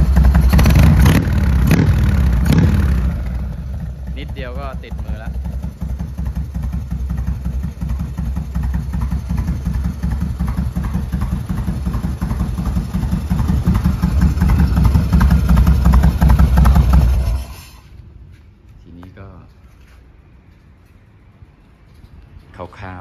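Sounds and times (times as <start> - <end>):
motorcycle engine running: 0.0 - 17.8.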